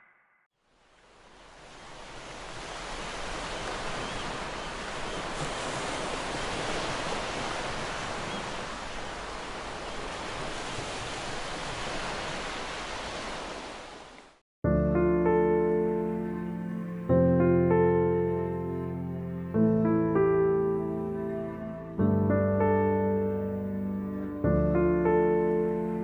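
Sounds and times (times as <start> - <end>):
sea surf rushing: 0.8 - 14.4.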